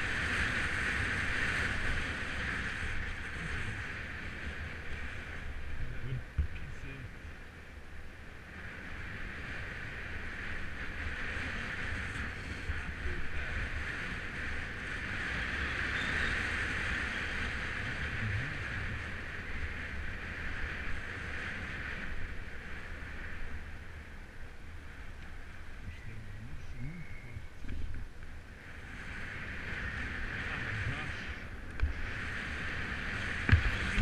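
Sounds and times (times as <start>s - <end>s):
bike tyres rolling on asphalt: 0.0s - 26.8s, 27.5s - 34.0s
wind buffeting microphone: 0.0s - 34.0s.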